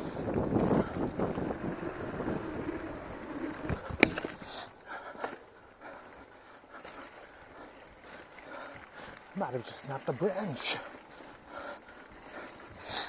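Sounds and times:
bike rattling: 0:00.0 - 0:13.0
bike tyres rumbling on dirt: 0:00.0 - 0:13.0.

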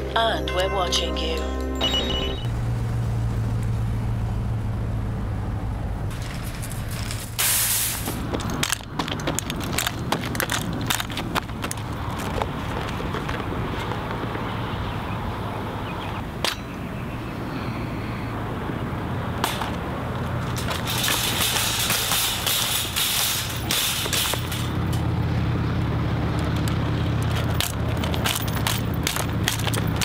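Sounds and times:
wheels rolling over asphalt: 0:02.5 - 0:30.0
shopping cart rattling: 0:06.1 - 0:12.7, 0:19.4 - 0:25.2, 0:26.5 - 0:30.0
sharp metal clanks: 0:16.4 - 0:16.8, 0:19.4 - 0:19.8, 0:20.4 - 0:25.1.

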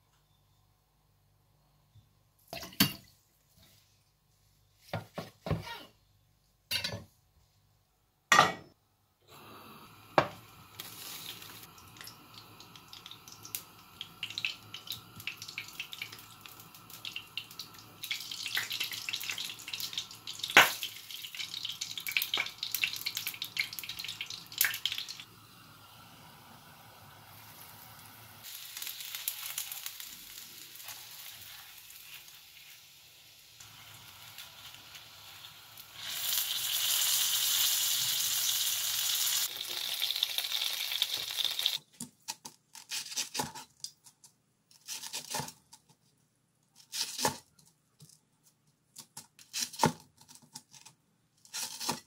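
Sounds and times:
crackling hiss with sharp clicks: 0:10.4 - 0:25.9, 0:26.5 - 0:41.8.

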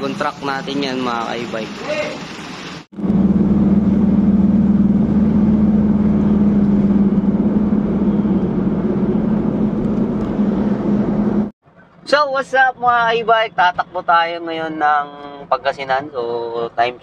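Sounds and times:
car cruising at highway speed: 0:02.8 - 0:11.6
constant low hum: 0:03.0 - 0:12.0.

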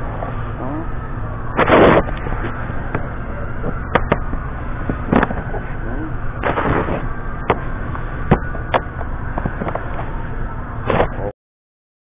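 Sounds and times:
low steady background hum: 0:00.0 - 0:11.3
scraping rustle: 0:01.6 - 0:02.6
sharp clicks and knocks: 0:02.9 - 0:05.7.

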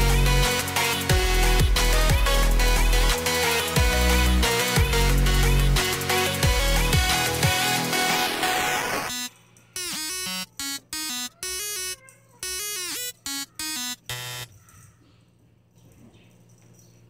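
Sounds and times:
buzzy synth notes: 0:06.5 - 0:14.5.

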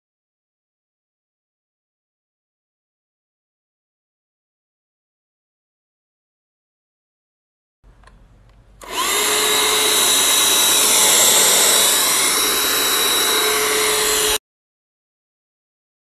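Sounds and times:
vacuum cleaner motor running: 0:08.8 - 0:14.4.

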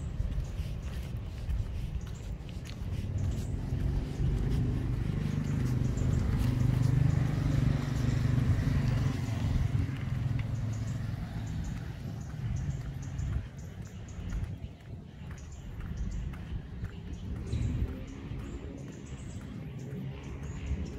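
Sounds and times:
vehicle passing by: 0:02.5 - 0:14.5, 0:16.3 - 0:20.9.

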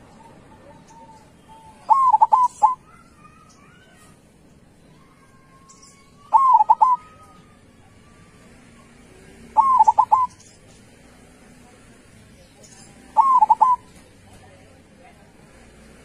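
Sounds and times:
dove cooing song: 0:00.0 - 0:02.8, 0:06.3 - 0:07.4, 0:09.4 - 0:10.6, 0:13.0 - 0:14.2.

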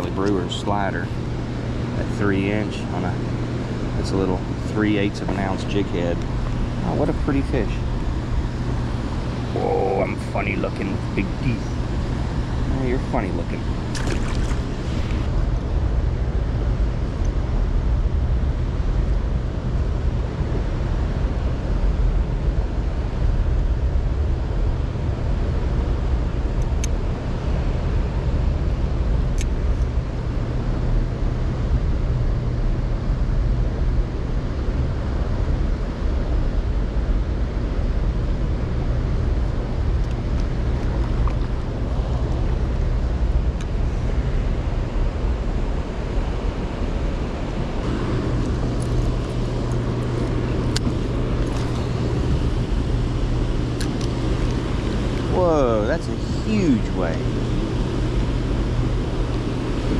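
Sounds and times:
steady low rumble: 0:00.0 - 0:59.9
water lapping against kayak hull: 0:13.9 - 0:15.3, 0:40.5 - 0:42.5.

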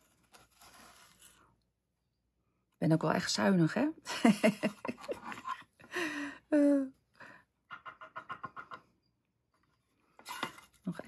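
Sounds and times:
woman chuckling softly: 0:07.7 - 0:08.9.

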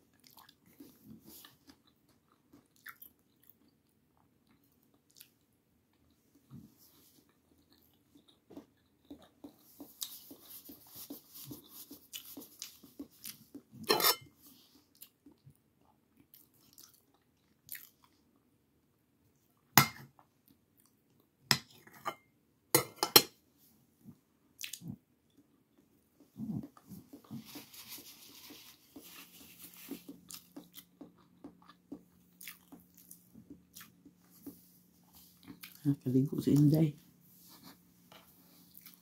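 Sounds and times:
chewing and mouth sounds: 0:00.1 - 0:13.9, 0:14.5 - 0:18.5, 0:24.6 - 0:36.0, 0:38.5 - 0:39.0.

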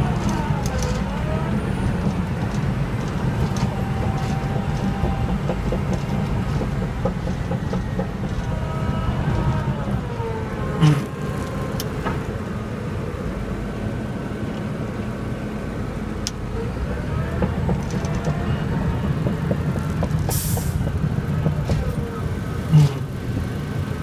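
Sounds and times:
faint squeals and clicks: 0:00.0 - 0:11.9
bulldozer diesel engine running: 0:00.0 - 0:24.0.

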